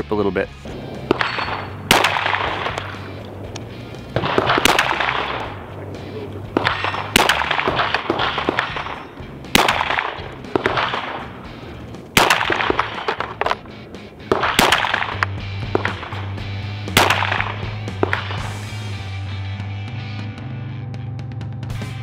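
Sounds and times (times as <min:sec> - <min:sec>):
gunshot echo: 0:00.7 - 0:11.4, 0:12.2 - 0:13.6, 0:14.3 - 0:18.6
pistol shots: 0:00.7 - 0:18.6.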